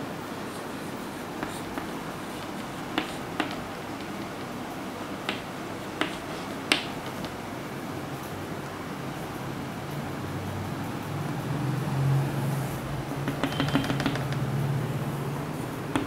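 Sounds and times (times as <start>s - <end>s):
chalk tapping on chalkboard: 0.5s - 4.6s, 5.2s - 7.4s, 13.2s - 14.5s.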